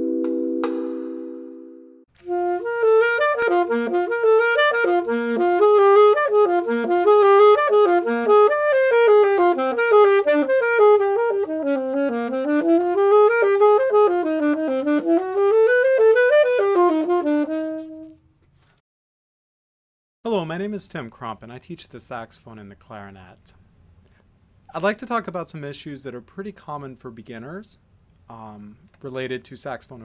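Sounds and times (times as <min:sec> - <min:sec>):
saxophone melody: 0:02.2 - 0:18.2.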